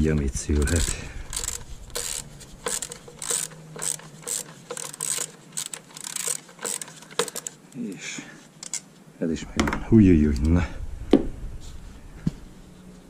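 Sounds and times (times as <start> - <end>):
ratchet wrench clicking: 0.6 - 7.6.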